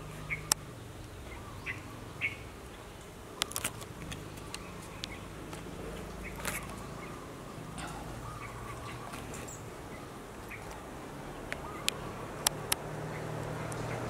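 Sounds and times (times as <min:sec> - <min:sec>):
sharp clicks: 0:03.4 - 0:05.2, 0:11.5 - 0:14.0.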